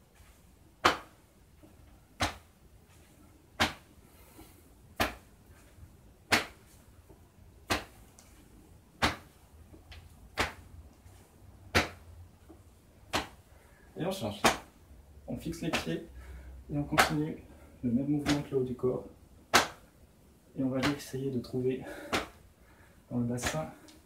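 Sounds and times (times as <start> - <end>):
hands slapping hips: 0.2 - 13.5, 14.2 - 14.8, 15.6 - 16.0, 16.8 - 17.3, 18.2 - 18.6, 19.5 - 19.9, 20.8 - 21.2, 21.9 - 22.5, 23.4 - 24.0.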